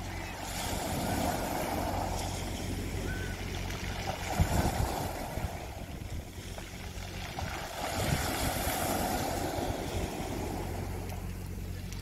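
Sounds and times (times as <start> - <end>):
low steady hum: 0.0 - 12.0
waves washing over pebbles: 0.0 - 12.0.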